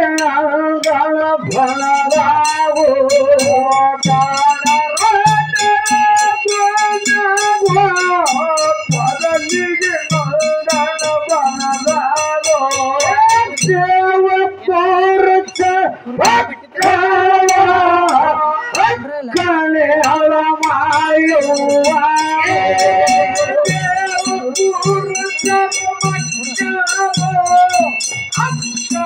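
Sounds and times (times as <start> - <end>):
woman singing folk song: 19.0 - 19.5.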